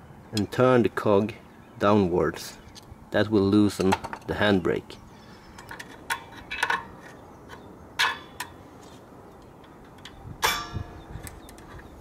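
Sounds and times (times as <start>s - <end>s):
metallic clang: 10.4s - 11.0s.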